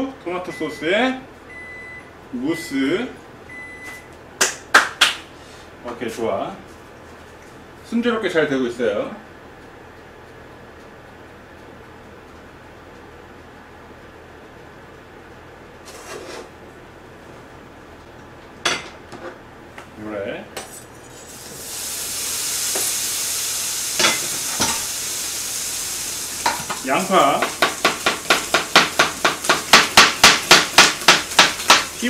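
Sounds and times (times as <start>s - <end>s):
meat sizzling in a frying pan: 21.2s - 32.0s
knife chopping onion on board: 27.4s - 32.0s.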